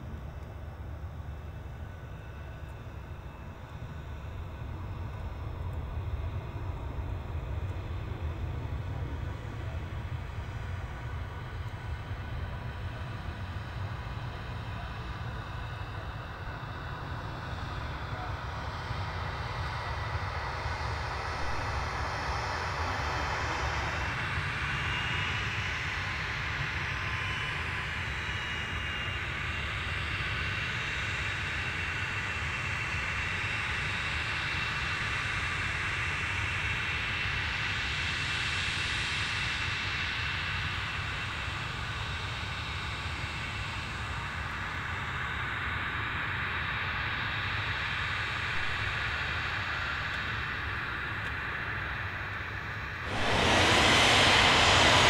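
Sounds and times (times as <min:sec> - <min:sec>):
jet engine high whine: 0:00.0 - 0:55.0
low rumble: 0:53.0 - 0:55.0
rushing noise: 0:53.0 - 0:55.0.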